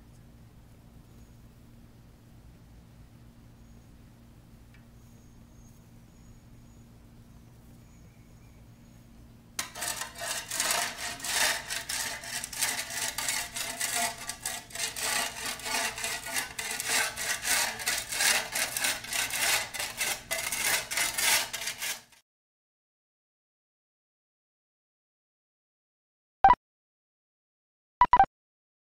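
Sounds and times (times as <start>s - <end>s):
shovel scraping concrete: 9.6s - 22.2s.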